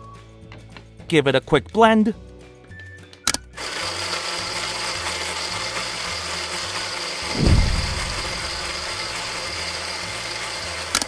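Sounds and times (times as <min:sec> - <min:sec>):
toy blender motor whirring: 0:03.6 - 0:06.8
loud low thump: 0:07.2 - 0:09.4.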